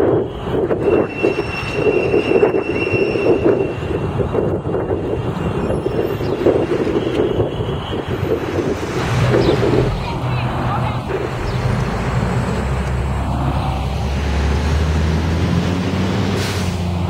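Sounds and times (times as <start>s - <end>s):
street traffic: 0.0s - 17.0s
bus engine driving past: 8.1s - 17.0s.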